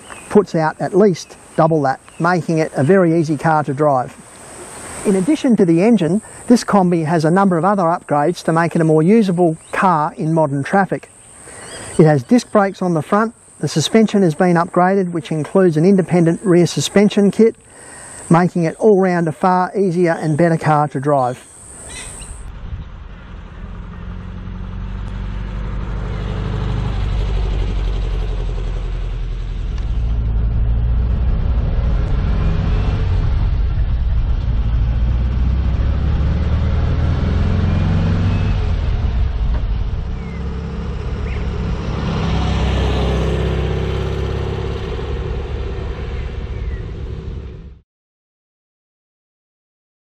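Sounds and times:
van engine running: 22.5 - 47.8.

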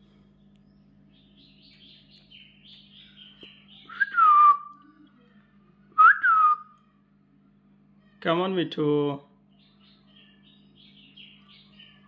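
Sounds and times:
parakeets chattering: 0.4 - 3.9, 9.4 - 12.0.

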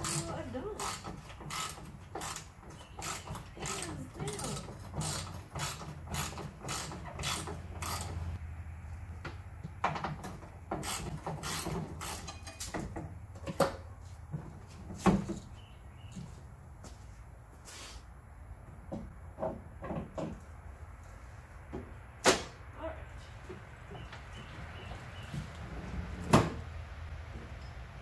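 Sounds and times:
creaks: 0.0 - 8.4.

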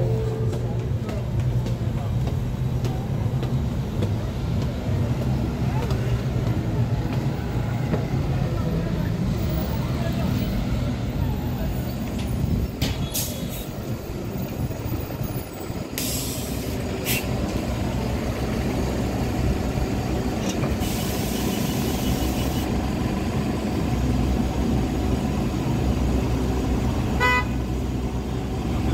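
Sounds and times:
bus engine rumbling: 0.0 - 28.9
compressed air hisses: 16.0 - 17.3, 20.8 - 22.7.

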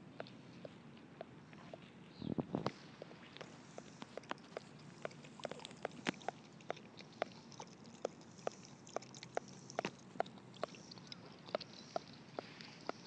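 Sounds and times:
dog lapping water: 3.4 - 13.0.

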